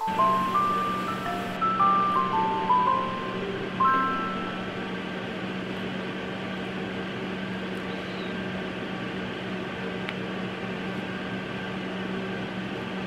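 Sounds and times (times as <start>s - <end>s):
fan-like hiss: 0.0s - 13.0s
low machine hum: 0.0s - 13.0s.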